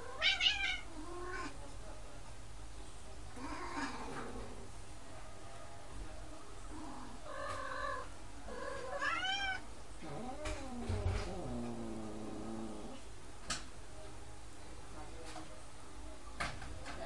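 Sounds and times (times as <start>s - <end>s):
cats yowling: 0.0s - 1.6s, 7.3s - 11.9s.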